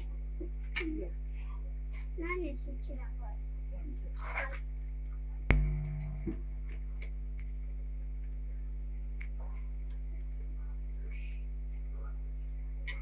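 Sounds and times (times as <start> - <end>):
steady low hum: 0.0 - 13.0
sharp knock: 5.5 - 6.4.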